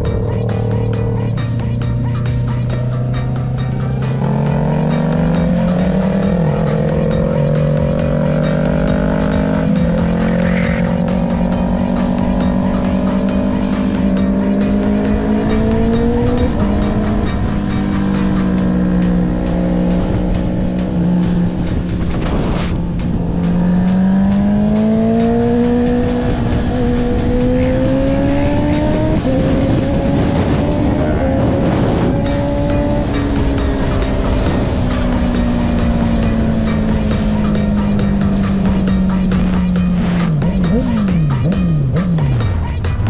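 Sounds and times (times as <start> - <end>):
motorcycle engine accelerating: 0.0 - 43.0
wind rush: 25.9 - 33.4.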